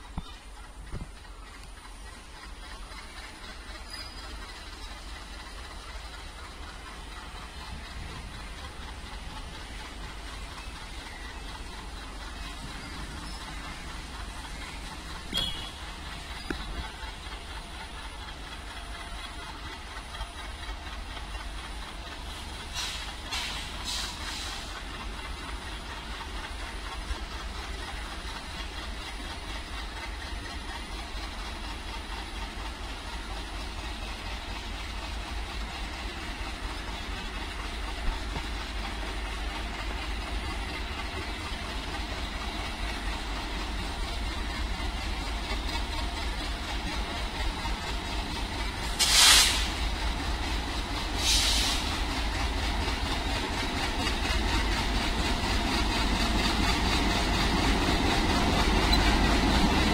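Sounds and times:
diesel locomotive engine rumble: 0.0 - 59.9
short hisses: 22.7 - 24.7, 48.9 - 49.8, 51.2 - 51.9.

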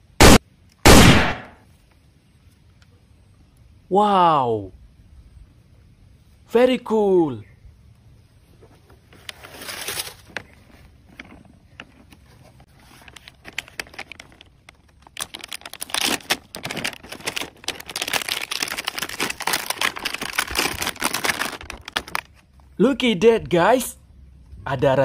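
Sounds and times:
plastic packaging crinkling: 12.7 - 22.4.

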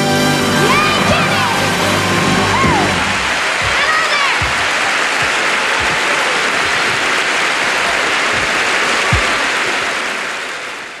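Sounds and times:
audience applauding: 0.7 - 11.0
low thumps: 2.0 - 9.6.

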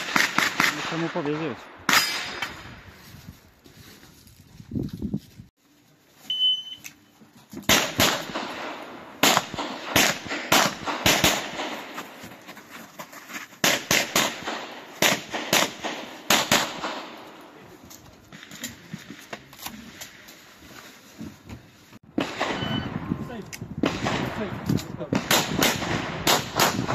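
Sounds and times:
pistol shots: 0.0 - 2.6, 7.7 - 12.0, 13.6 - 17.4, 22.2 - 23.1, 23.8 - 26.9
shot timer beep: 6.3 - 6.9, 22.6 - 22.9.

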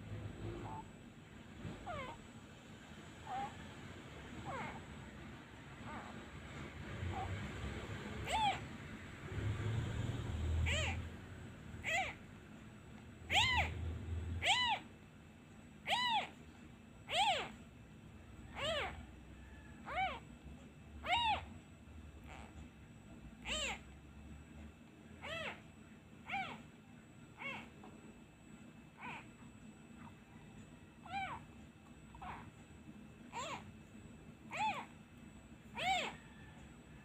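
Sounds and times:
kitten mewing: 1.7 - 2.3, 3.2 - 6.3, 6.9 - 8.8, 9.4 - 11.2, 11.8 - 12.2, 13.3 - 14.9, 15.8 - 16.4, 17.0 - 17.6, 18.5 - 19.0, 19.8 - 20.3, 21.0 - 21.6, 23.4 - 23.8, 25.2 - 26.7, 27.4 - 27.8, 29.0 - 29.4, 31.0 - 32.6, 33.3 - 33.7, 34.5 - 35.0, 35.7 - 36.3.

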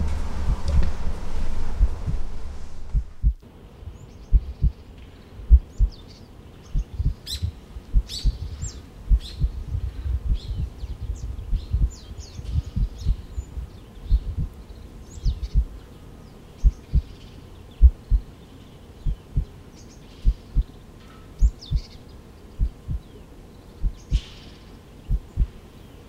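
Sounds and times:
heartbeat-like double thumps: 0.0 - 1.0, 1.8 - 3.4, 4.3 - 4.7, 5.5 - 6.0, 6.8 - 10.7, 11.5 - 13.2, 14.1 - 14.5, 23.8 - 24.2, 25.1 - 25.5
birds chirping: 0.0 - 26.0.

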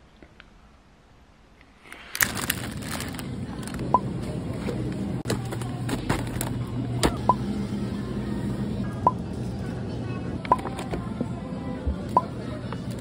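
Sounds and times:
plastic packaging crackling: 1.9 - 3.9
low hum: 2.3 - 13.0.

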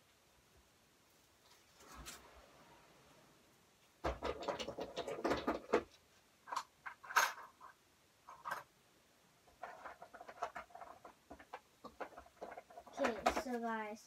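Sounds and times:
closet rattling and scraping: 1.4 - 3.3, 3.9 - 8.7, 9.4 - 14.0
closet clacks: 4.0 - 7.7, 9.5 - 13.8.

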